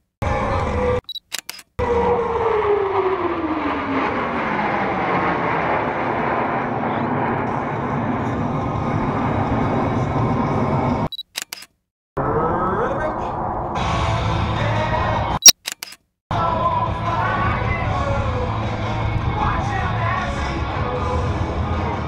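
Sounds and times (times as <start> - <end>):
jet engines roaring: 1.8 - 11.1, 12.2 - 15.2.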